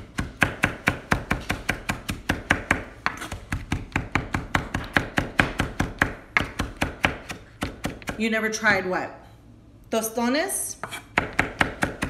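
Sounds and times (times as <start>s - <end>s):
knife chopping on wooden board: 0.1s - 8.2s, 10.8s - 12.0s.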